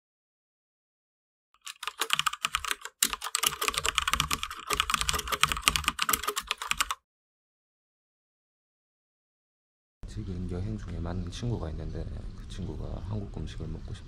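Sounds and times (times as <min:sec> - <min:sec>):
keyboard typing clicks: 0:01.6 - 0:07.0.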